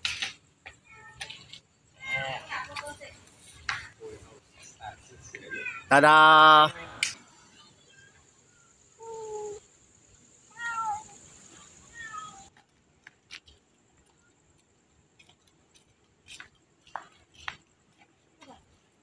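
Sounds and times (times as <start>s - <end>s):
cats meowing: 5.4s - 6.0s, 10.4s - 12.5s.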